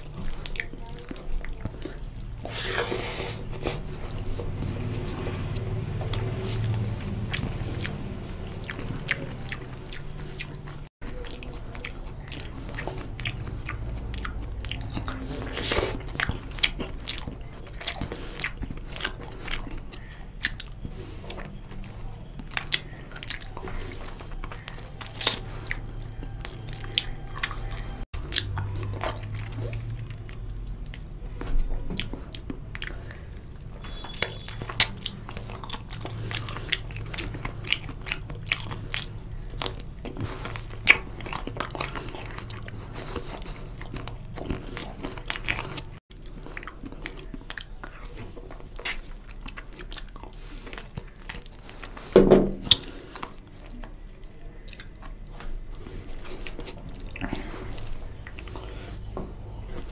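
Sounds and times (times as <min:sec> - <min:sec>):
man chewing food: 0:00.0 - 0:59.9
wet mouth smacks and clicks: 0:24.5 - 0:25.8, 0:51.2 - 0:53.4.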